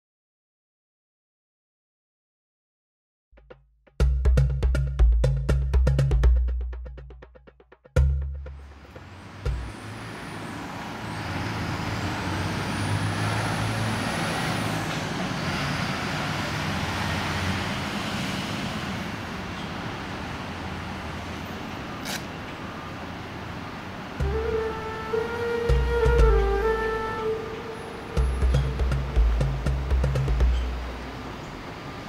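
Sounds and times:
heavy vehicle engine rumble: 0:08.4 - 0:32.0.

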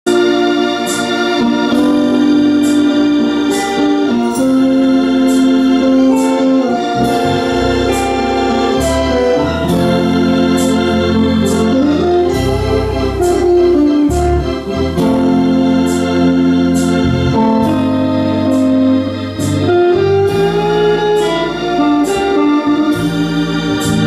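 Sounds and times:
church band music: 0:00.0 - 0:24.0
bass line: 0:00.1 - 0:24.0
held organ-like chords: 0:00.1 - 0:24.0.

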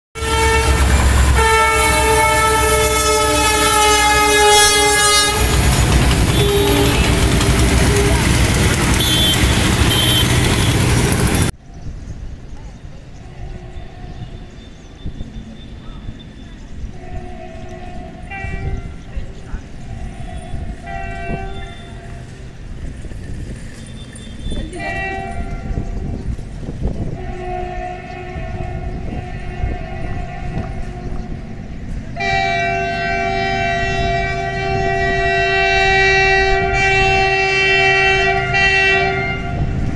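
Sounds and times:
locomotive air horn: 0:00.2 - 0:11.5, 0:17.0 - 0:19.0, 0:20.4 - 0:22.4, 0:24.5 - 0:26.2, 0:27.0 - 0:31.4, 0:32.2 - 0:39.9
train passing rumble: 0:00.2 - 0:39.9.

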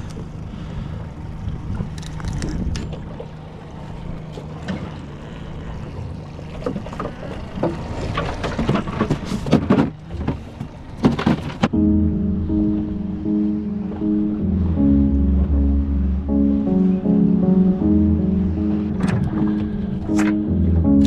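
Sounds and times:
low hum of boat: 0:00.0 - 0:21.0.

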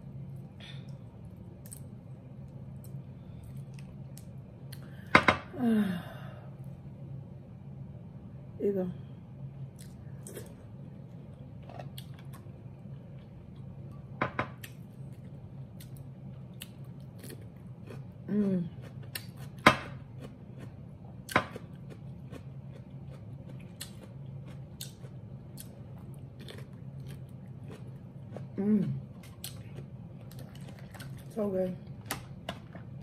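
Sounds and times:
low hum: 0:00.0 - 0:33.0
crunching cucumber: 0:18.7 - 0:28.6.

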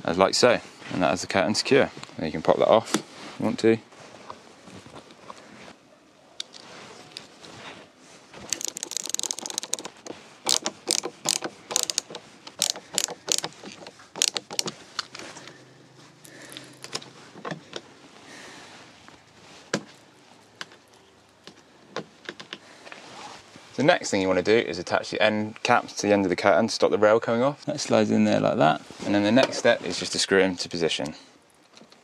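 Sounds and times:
screwdriver clicking: 0:08.5 - 0:14.7.

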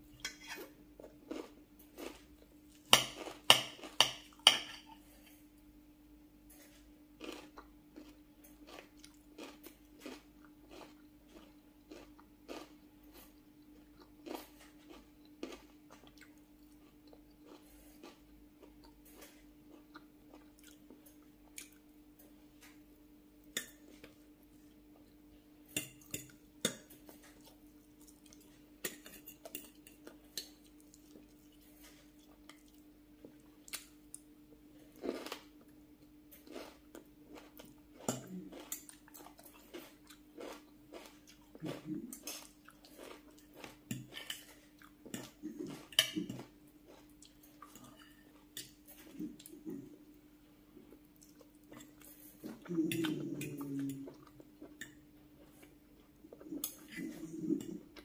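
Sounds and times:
faint steady hum: 0:00.0 - 0:58.0
chewing and biting food: 0:07.2 - 0:21.8.

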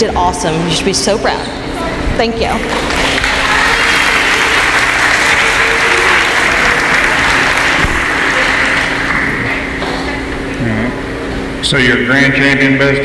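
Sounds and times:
audience applauding: 0:02.5 - 0:10.5.

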